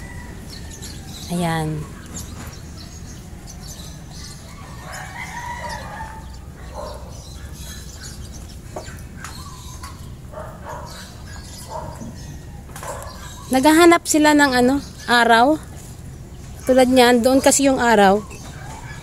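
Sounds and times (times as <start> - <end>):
rooster crowing: 0.0 - 1.3, 4.1 - 7.3
chickens clucking: 0.0 - 13.9, 15.7 - 19.0
low background hum: 0.0 - 19.0.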